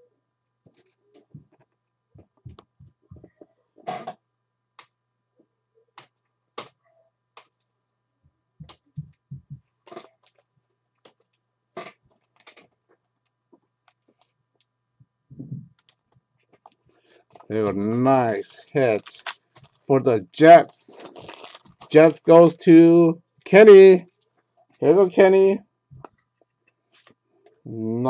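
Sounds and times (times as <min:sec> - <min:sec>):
faint electrical hum: 0:00.0 - 0:28.0
soft low knocks: 0:08.6 - 0:09.7.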